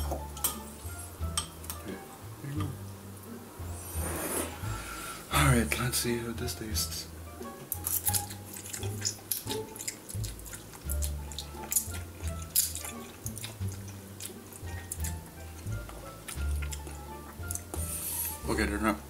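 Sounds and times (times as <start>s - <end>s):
background music with bass line: 0.0s - 18.8s
chewing: 7.7s - 18.4s
noodles being slurped: 7.8s - 18.4s.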